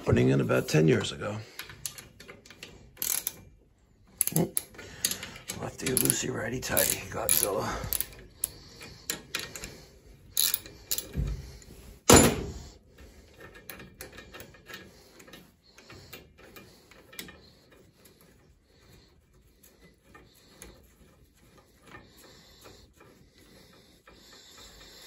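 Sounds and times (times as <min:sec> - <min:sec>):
wrench clicking on metal bolts: 0:01.6 - 0:03.5, 0:04.2 - 0:09.7, 0:10.4 - 0:11.2.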